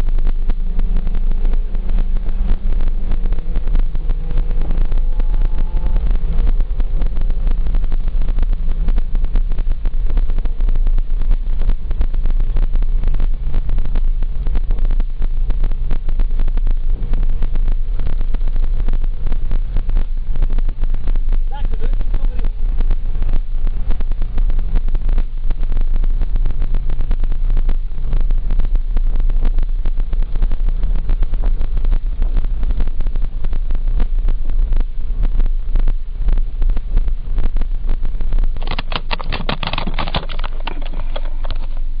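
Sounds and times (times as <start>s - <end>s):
low engine hum: 0.0s - 42.0s
tyre and road rumble: 0.0s - 42.0s.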